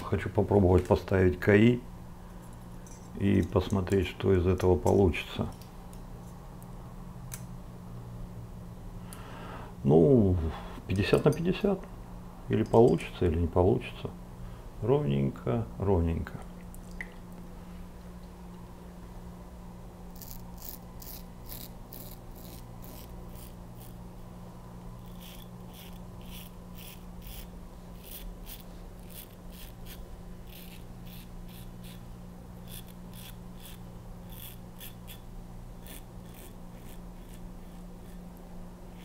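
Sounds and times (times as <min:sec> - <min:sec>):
razor scraping stubble: 0:20.1 - 0:24.0, 0:25.0 - 0:39.0.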